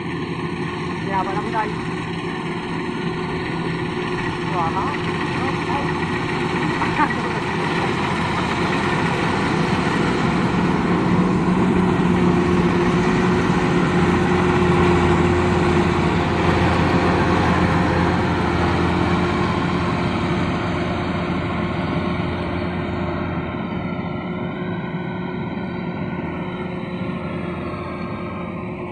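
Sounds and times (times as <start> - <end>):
machinery rattle: 0.0 - 20.8
combine harvester engine drone: 0.0 - 28.9.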